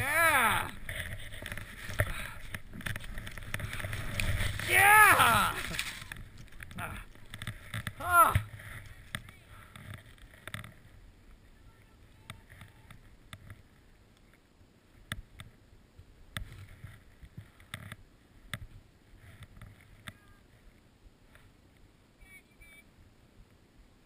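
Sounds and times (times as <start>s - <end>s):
rustling of gear: 0.2s - 10.9s.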